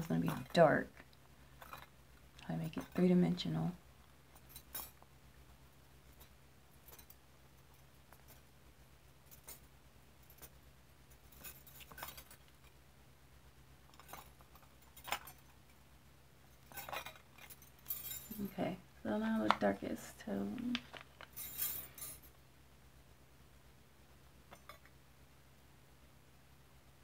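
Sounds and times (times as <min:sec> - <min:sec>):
metal bangles clinking: 0:00.0 - 0:00.8, 0:01.5 - 0:05.1, 0:06.0 - 0:12.8, 0:13.8 - 0:15.8, 0:16.4 - 0:18.6, 0:20.9 - 0:22.4
low steady hum: 0:00.0 - 0:27.0.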